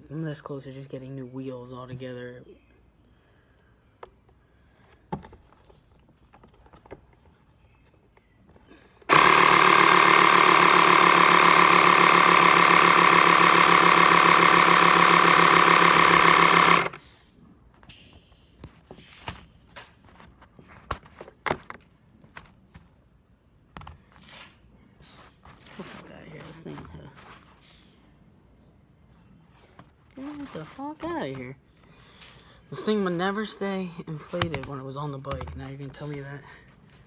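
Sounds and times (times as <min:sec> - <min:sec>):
electric air compressor running: 0:09.1 - 0:17.1
handling clicks and taps: 0:34.4 - 0:35.8.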